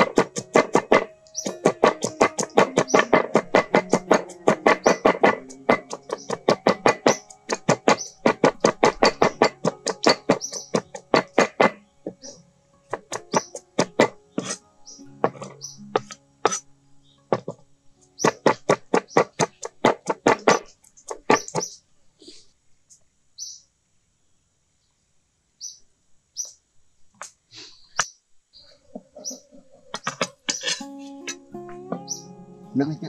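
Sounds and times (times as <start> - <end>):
cleaver chopping on wooden board: 0.0 - 12.3, 12.9 - 14.6, 18.2 - 21.7
birds chirping: 0.0 - 22.4, 23.4 - 23.7, 25.6 - 26.6, 27.2 - 33.0.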